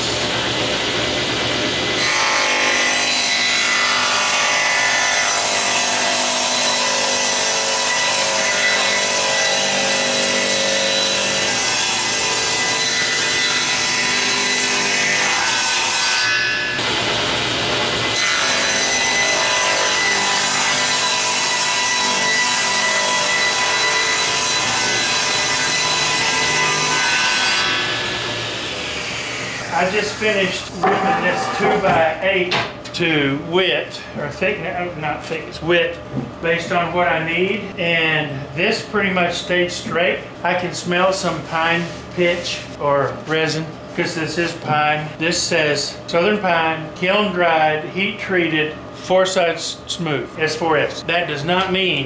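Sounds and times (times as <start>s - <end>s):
table saw cutting wood: 0.0s - 32.7s, 40.5s - 42.8s.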